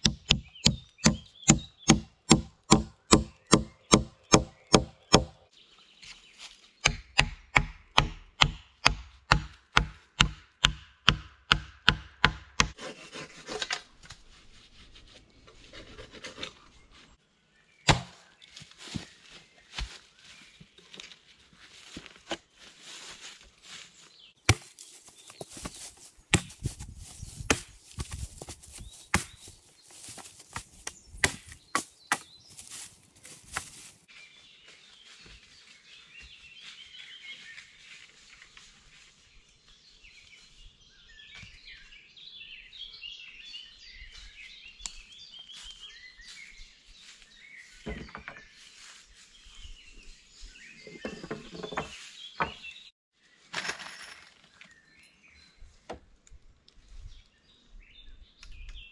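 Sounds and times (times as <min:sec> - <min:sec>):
hand tool striking wood: 0:00.0 - 0:05.4, 0:06.8 - 0:12.8, 0:26.3 - 0:26.8, 0:27.4 - 0:29.6, 0:30.6 - 0:32.3
small birds chirping: 0:00.0 - 0:07.3, 0:23.4 - 0:53.5, 0:54.4 - 0:58.9.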